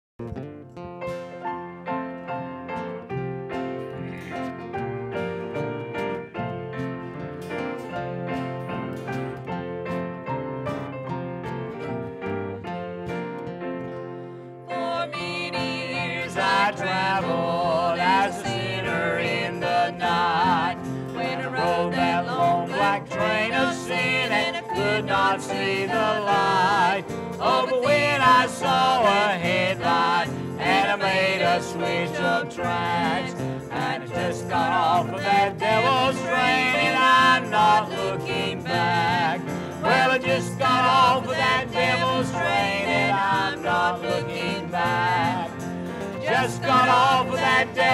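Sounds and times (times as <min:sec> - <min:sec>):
country instrumental backing: 0:00.2 - 0:47.9
man singing: 0:15.6 - 0:20.6.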